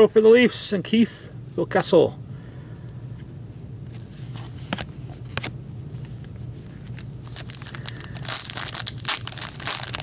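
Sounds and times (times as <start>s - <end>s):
packaging crinkling: 6.8s - 10.0s.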